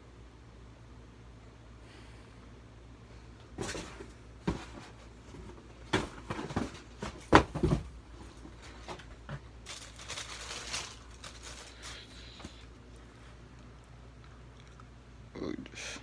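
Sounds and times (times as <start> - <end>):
cardboard box knocks and bumps: 3.6 - 8.0
wrapping paper rustling: 8.6 - 13.0.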